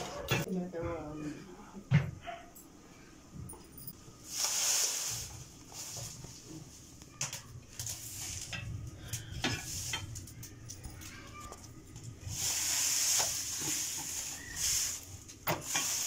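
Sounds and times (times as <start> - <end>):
straw fire crackling and hissing: 4.0 - 16.0.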